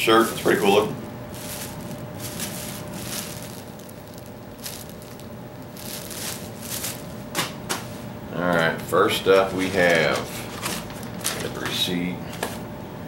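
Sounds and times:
plastic bag crinkling: 0.4 - 7.7.

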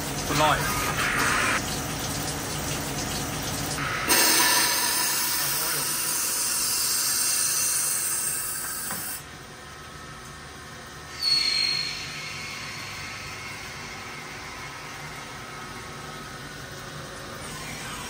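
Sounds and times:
coolant spraying: 0.0 - 8.6.

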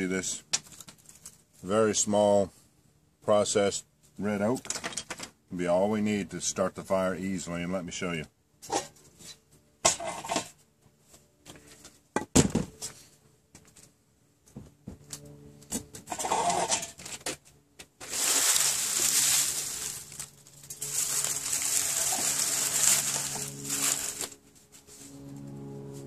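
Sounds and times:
fire crackling: 18.0 - 24.4.

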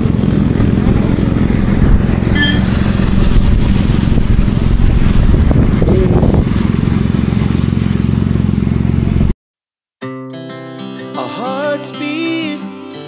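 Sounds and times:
road noise from a wet road: 0.0 - 9.3
motorcycle engine running: 0.0 - 9.4.

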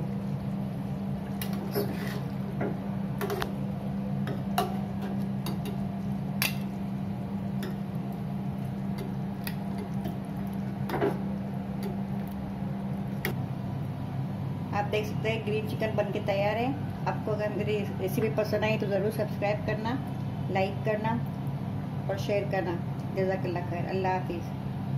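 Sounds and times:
low steady hum: 0.0 - 24.9
ladle scraping a metal pot: 1.5 - 2.3.

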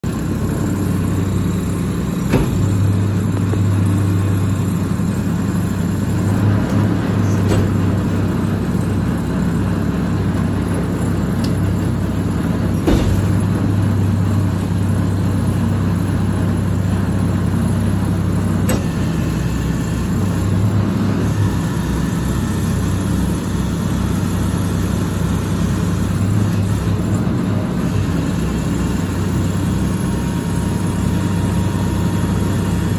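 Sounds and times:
diesel truck engine running: 0.0 - 32.9
knocks and bangs from dumpster: 1.3 - 5.1, 6.1 - 8.6, 10.3 - 14.4.

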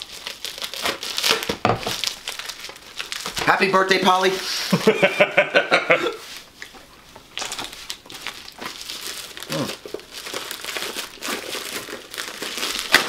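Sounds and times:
paper rustling and tearing: 0.0 - 3.5, 7.4 - 13.0.

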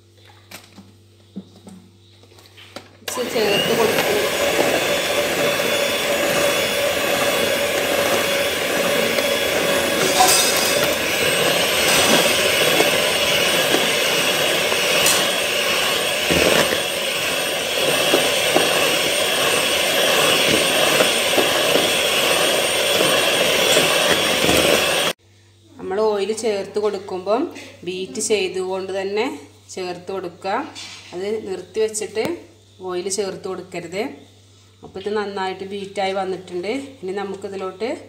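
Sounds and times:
electric hand mixer running: 3.1 - 25.2.

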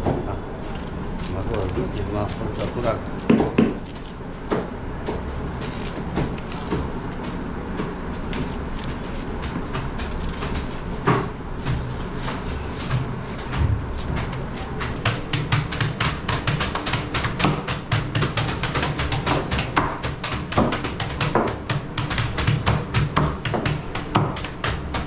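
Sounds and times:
steady low rumble: 4.1 - 15.0.

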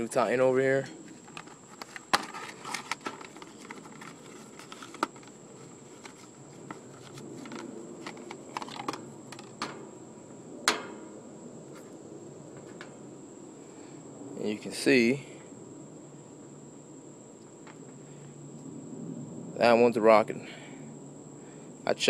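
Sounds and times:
cardboard box rustling: 1.1 - 9.6.

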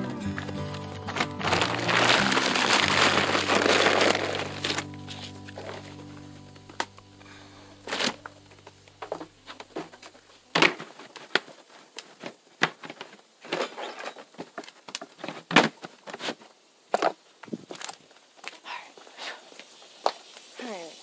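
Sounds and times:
low steady hum: 0.0 - 11.1.

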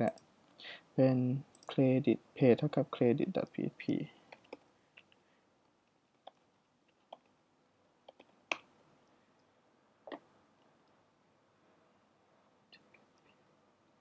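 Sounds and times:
keyboard and mouse clicks: 1.5 - 1.8, 3.9 - 5.1, 6.2 - 7.3, 8.1 - 8.7.

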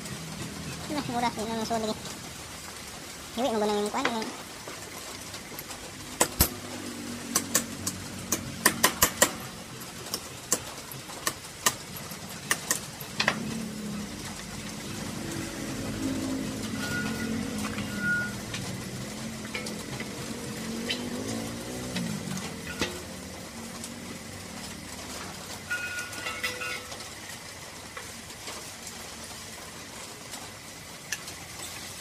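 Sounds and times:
metal fittings and tools clinking: 25.7 - 27.1.

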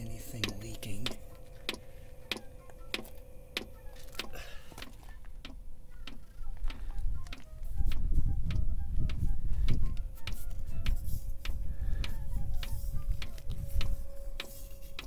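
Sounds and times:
low rumble: 0.0 - 5.9
fuel pump ticking: 0.0 - 15.0
steady hum: 0.0 - 15.0.

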